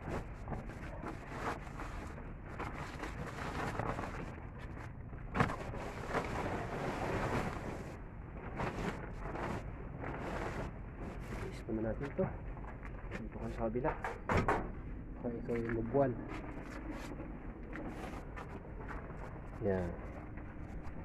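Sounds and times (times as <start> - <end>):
wind noise on microphone: 0.0 - 11.4
plastic tarpaulin being pulled: 0.0 - 12.2.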